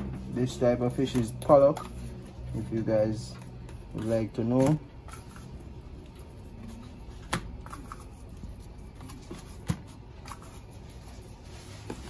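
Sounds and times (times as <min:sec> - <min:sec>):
plastic containers rustling and scraping: 0:00.0 - 0:12.0.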